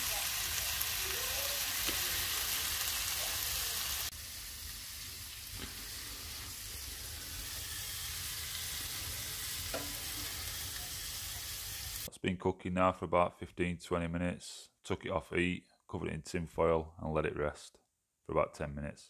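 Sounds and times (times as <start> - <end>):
meat sizzling in a grill pan: 0.0 - 12.1.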